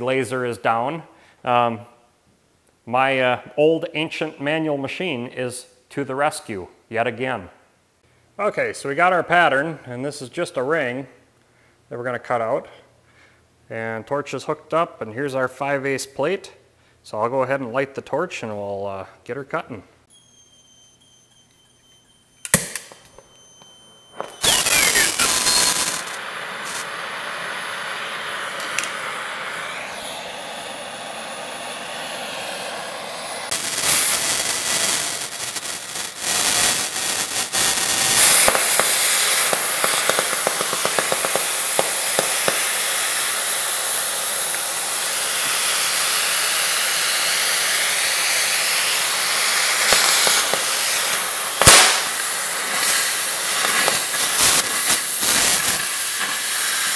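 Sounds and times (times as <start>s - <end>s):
cutting torch hissing: 20.9s - 56.9s
torch lighting pop: 22.4s - 23.4s, 24.2s - 30.4s, 38.1s - 42.9s, 49.7s - 56.8s
sharp pop: 22.5s - 23.3s, 24.2s - 26.9s, 28.6s - 29.1s, 38.4s - 42.7s, 51.6s - 52.3s.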